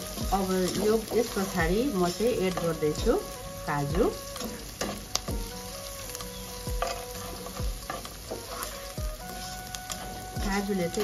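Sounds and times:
nuts and onions sizzling in oil: 0:00.0 - 0:11.0
spatula scraping a pan: 0:04.0 - 0:11.0.

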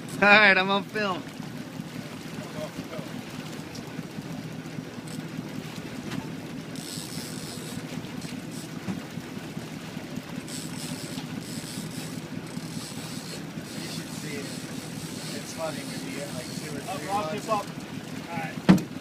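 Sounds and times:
boat engine humming: 0:00.0 - 0:19.0.

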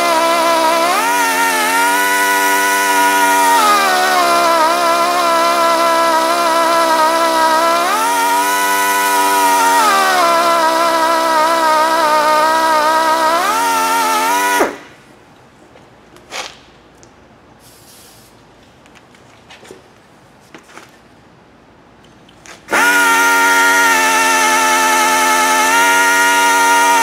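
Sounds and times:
drill motor whining: 0:00.0 - 0:14.9, 0:22.7 - 0:27.0.

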